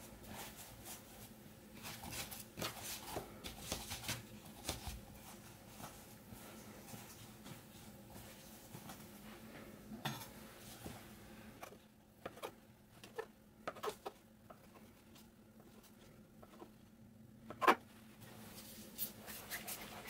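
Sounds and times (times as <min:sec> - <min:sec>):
hands rubbing dough: 0:17.6 - 0:20.0.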